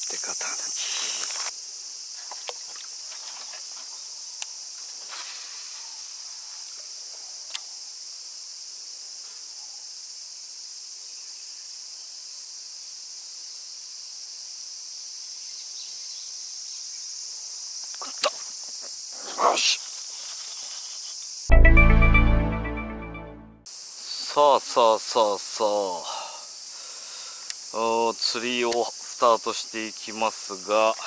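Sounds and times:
cicada chorus drone: 10.0s - 19.2s, 23.8s - 31.0s.

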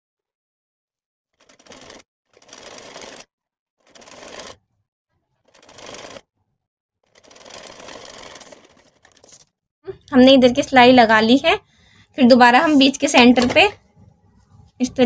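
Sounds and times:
sewing machine stitching: 1.4s - 6.3s, 7.0s - 9.4s.

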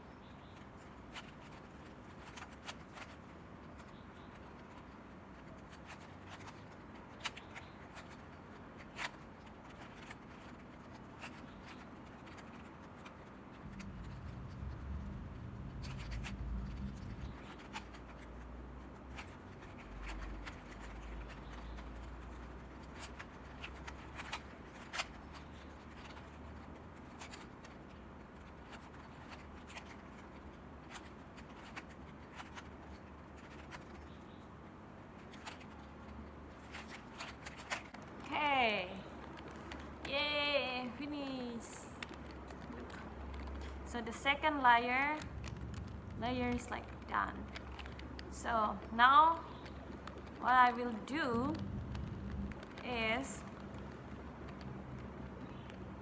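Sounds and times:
low rumble: 13.6s - 17.4s, 45.2s - 48.0s, 50.9s - 53.6s
puzzle cube plastic clicks: 41.8s - 56.0s.

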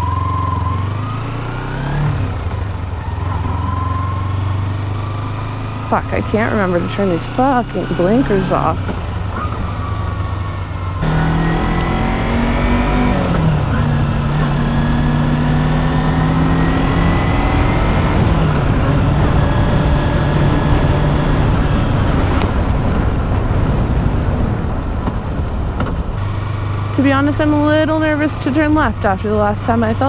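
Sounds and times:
motorcycle engine revving: 0.0s - 30.0s
wind noise on microphone: 11.2s - 26.4s.

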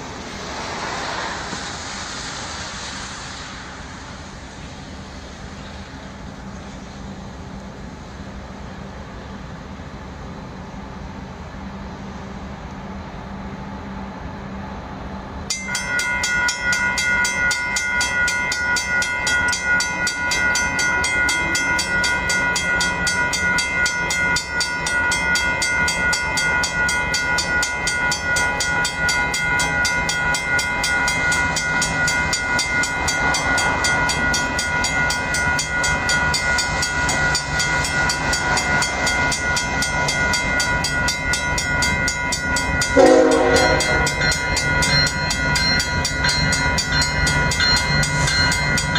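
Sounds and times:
diesel locomotives running: 0.0s - 48.9s
rail noise: 0.0s - 48.9s
train horn blast: 43.0s - 44.2s.

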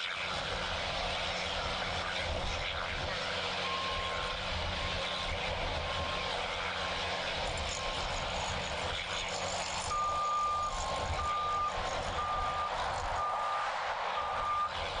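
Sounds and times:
steady machine noise: 0.0s - 15.0s
reversing alarm beeping: 3.6s - 4.3s, 9.8s - 14.8s.

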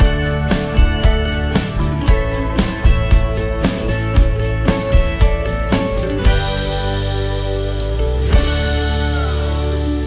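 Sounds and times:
percussive hit: 0.0s - 7.3s
instrumental background music: 0.0s - 10.0s.

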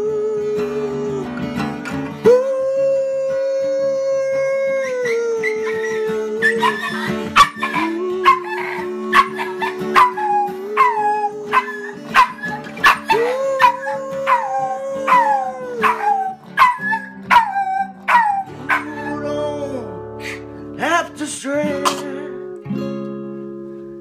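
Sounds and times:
acoustic guitar strumming: 0.0s - 24.0s
puppy howling: 4.1s - 19.6s.

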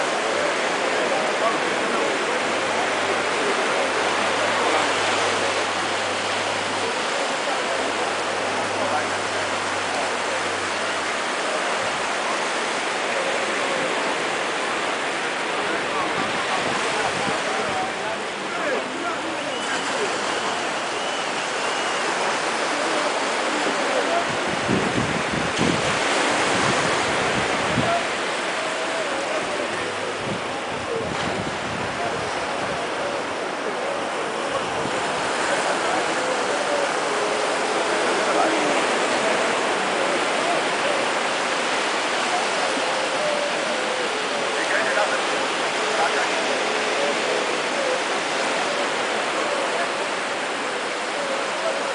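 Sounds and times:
wind on microphone: 0.0s - 18.5s, 23.6s - 44.6s
ocean surf breaking: 0.0s - 51.9s.

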